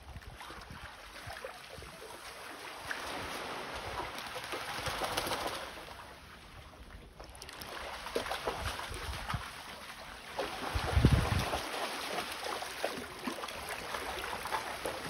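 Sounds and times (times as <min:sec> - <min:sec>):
dog splashing in water: 0:07.4 - 0:15.0.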